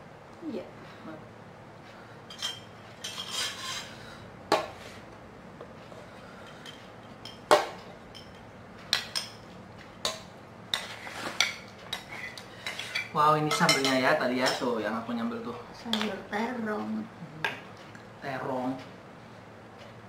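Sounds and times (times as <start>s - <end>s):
spoons clinking against dishes: 2.3s - 3.8s, 6.4s - 14.7s.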